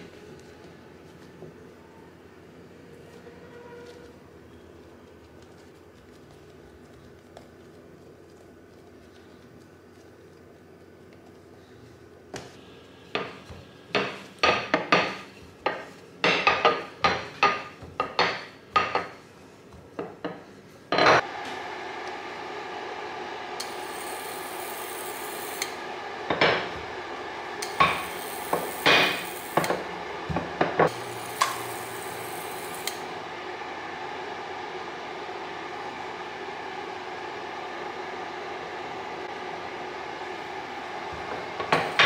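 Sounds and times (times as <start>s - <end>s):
steady hum: 0.0s - 42.0s
dough knocking and slapping: 13.2s - 20.5s.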